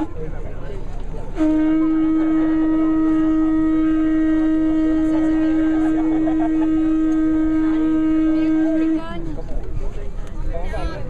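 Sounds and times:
horn blowing long note: 1.3s - 9.3s.

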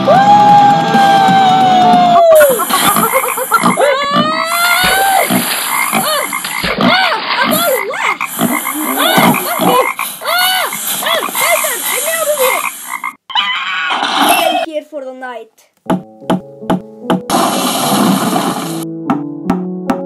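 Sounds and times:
chorus of animal calls: 1.0s - 14.7s.

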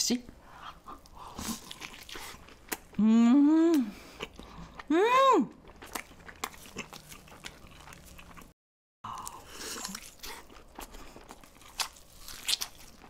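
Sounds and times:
biting and chewing food: 0.9s - 3.0s, 5.6s - 13.0s.

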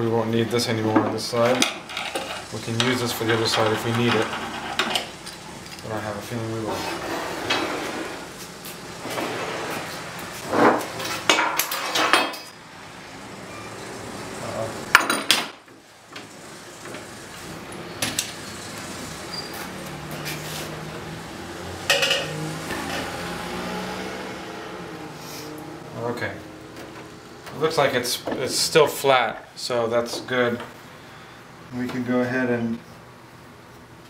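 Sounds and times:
tools clanking on wooden table: 10.5s - 12.5s.

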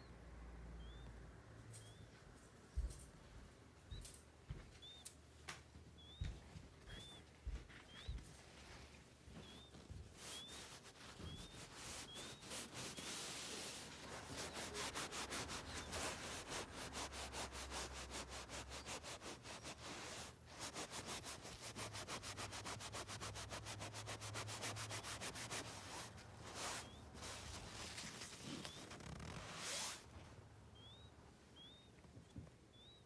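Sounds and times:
quail chicks peeping: 0.8s - 1.2s, 1.8s - 2.1s, 4.8s - 5.2s, 5.9s - 8.2s, 9.3s - 16.7s, 24.8s - 29.2s, 30.7s - 33.0s
fast scratching on fabric: 6.9s - 30.1s.

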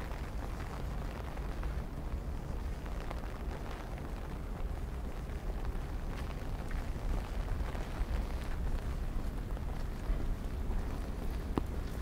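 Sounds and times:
wind buffeting microphone: 0.0s - 12.0s
faint ticks: 5.6s - 12.0s.

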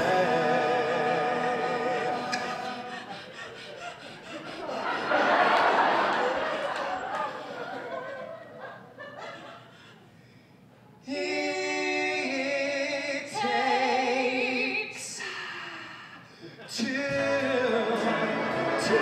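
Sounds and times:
voices singing in harmony: 0.0s - 3.8s, 11.1s - 15.7s, 16.7s - 19.0s.

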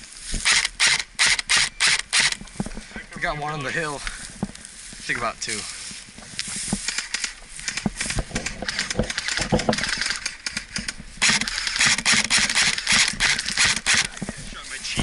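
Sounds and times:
rustling: 0.0s - 15.0s
crackling and clicking: 6.2s - 15.0s.

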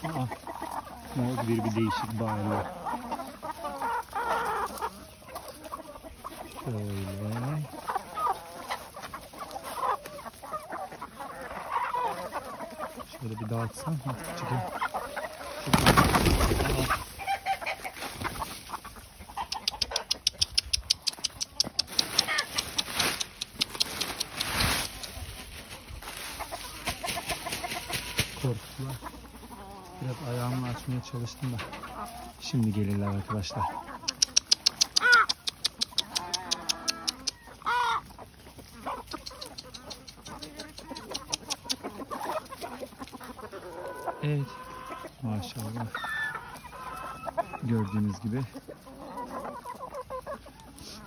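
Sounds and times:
chickens clucking: 0.0s - 51.0s
chickens flapping wings: 15.4s - 17.1s, 21.4s - 25.4s, 26.6s - 28.5s
fast dry ticks: 19.4s - 25.2s, 34.1s - 37.4s.

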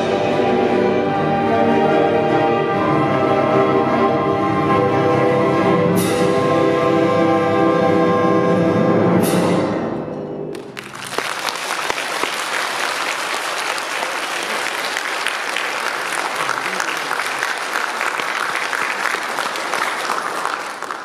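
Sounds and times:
orchestra playing chords: 0.0s - 11.2s
audience applause: 10.6s - 21.0s.

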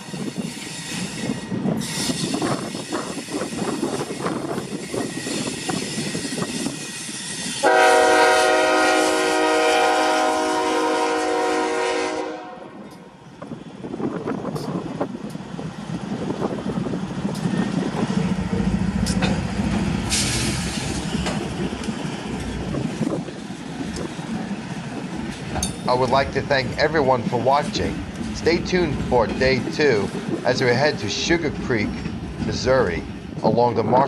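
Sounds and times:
train rumbling past: 0.0s - 34.0s
locomotive air horn blast: 7.6s - 12.8s
wheels clicking over rail joints: 19.0s - 26.9s.

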